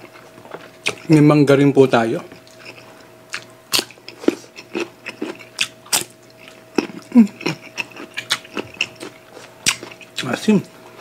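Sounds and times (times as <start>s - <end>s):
crisp bites and wet chewing: 2.3s - 10.4s.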